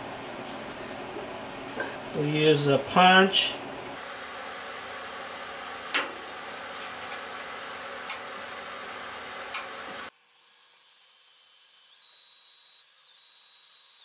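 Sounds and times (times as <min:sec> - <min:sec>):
cordless drill motor whine: 0:09.4 - 0:14.0.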